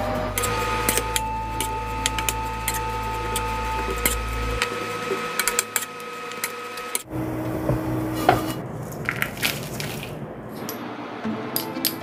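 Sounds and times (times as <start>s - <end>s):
steady whine: 0.0s - 9.0s.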